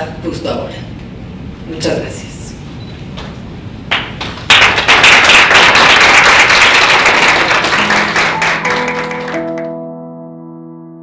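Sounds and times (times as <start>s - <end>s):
audience applause: 4.5s - 9.7s
sustained music notes: 7.6s - 10.6s.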